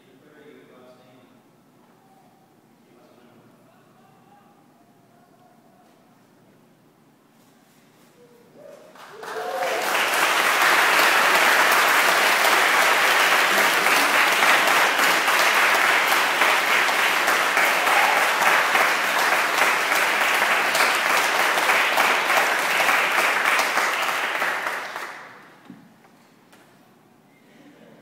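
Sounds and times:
congregation applauding: 8.9 - 25.6.

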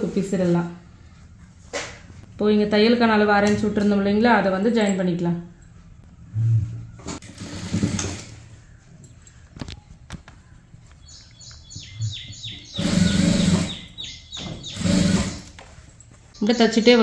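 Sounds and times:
sewing machine stitching: 7.2 - 8.4, 12.8 - 14.0, 14.6 - 15.6.

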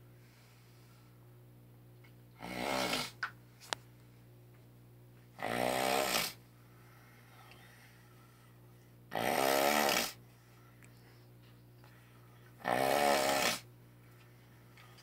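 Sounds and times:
man snoring: 2.4 - 3.2, 5.4 - 6.4, 9.1 - 10.2, 12.6 - 13.7.

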